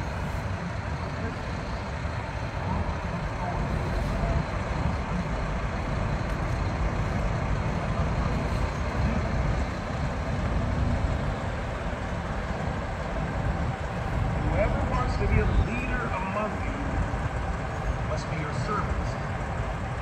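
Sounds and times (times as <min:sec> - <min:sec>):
truck diesel engine rumbling: 0:00.0 - 0:20.0.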